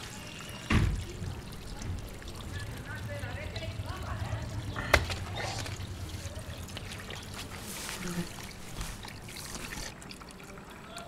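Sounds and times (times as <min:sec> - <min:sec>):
hose water running into pan: 0:00.0 - 0:11.0
hands splashing and rubbing meat: 0:04.8 - 0:09.9.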